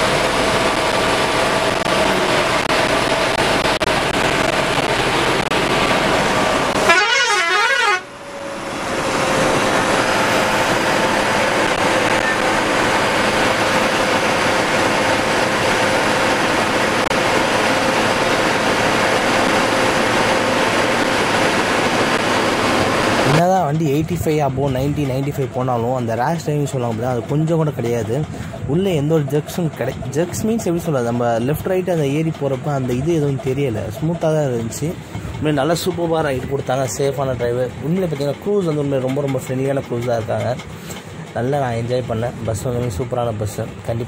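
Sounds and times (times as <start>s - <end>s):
coach engine and road noise: 0.0s - 44.0s
horn with wavering pitch: 6.7s - 8.8s.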